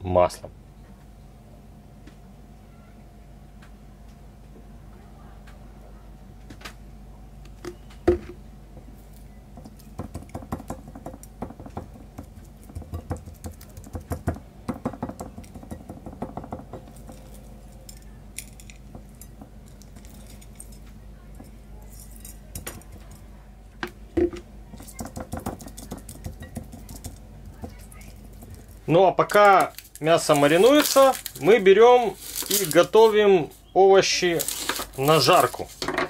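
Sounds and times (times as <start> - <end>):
steady low hum: 0.0 - 36.0
meat tapping on ceramic plate: 9.6 - 17.4, 23.8 - 27.8.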